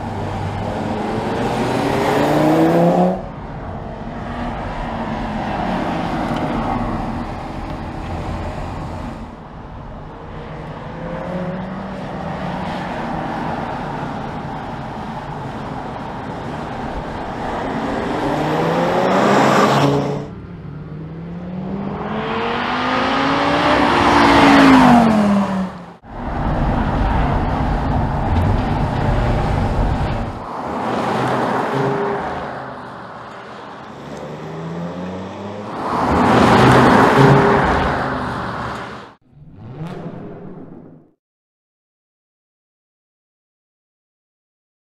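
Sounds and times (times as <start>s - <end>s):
car engine accelerating: 33.8s - 41.2s.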